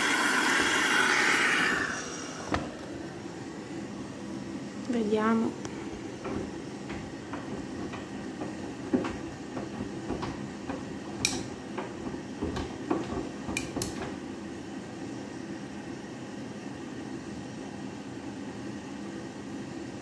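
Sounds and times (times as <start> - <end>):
water sloshing in washing machine: 0.0 - 2.8, 5.8 - 14.5.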